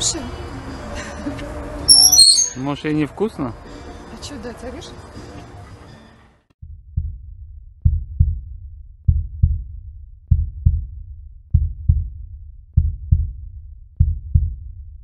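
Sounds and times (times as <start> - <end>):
heartbeat thumps: 6.9 - 7.2, 7.8 - 8.5, 9.1 - 12.2, 12.8 - 13.4, 14.0 - 14.6.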